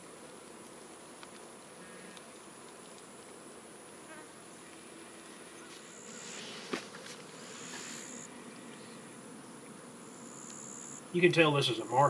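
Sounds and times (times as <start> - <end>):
insects whining: 3.4 - 12.0
insect buzzing call: 3.8 - 12.0.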